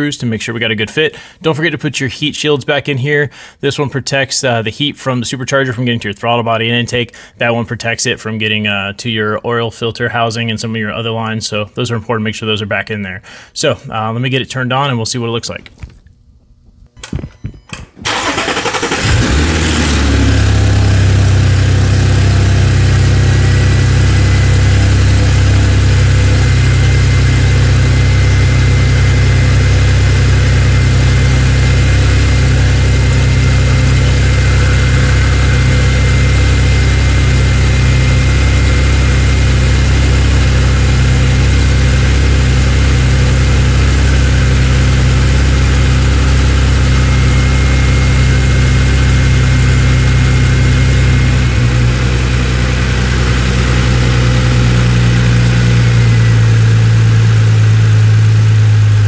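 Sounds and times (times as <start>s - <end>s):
car engine starting and idling: 17.0s - 59.0s.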